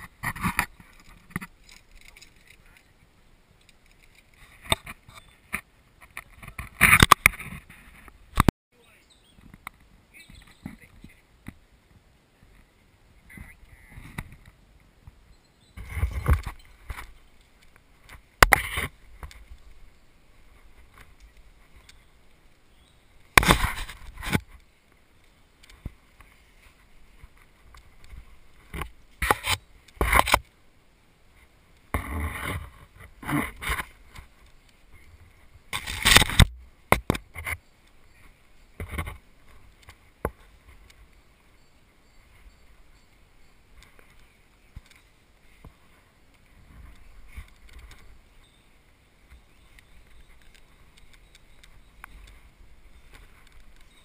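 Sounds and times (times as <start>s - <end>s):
camera rubbing against rock and gear: 0.0s - 2.9s, 3.7s - 8.5s, 15.8s - 19.8s, 23.3s - 24.7s, 25.7s - 30.5s, 31.9s - 37.6s.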